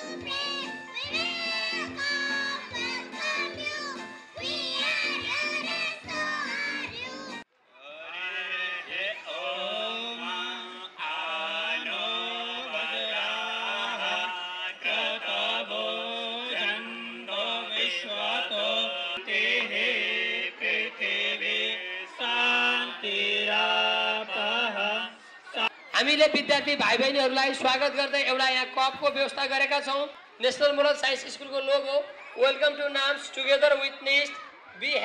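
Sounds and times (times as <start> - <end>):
keyboard: 0.0 - 7.5
children singing: 0.2 - 7.4.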